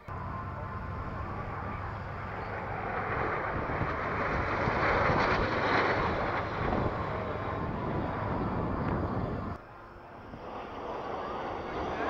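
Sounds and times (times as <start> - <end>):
aircraft engines rushing past: 0.0 - 12.0.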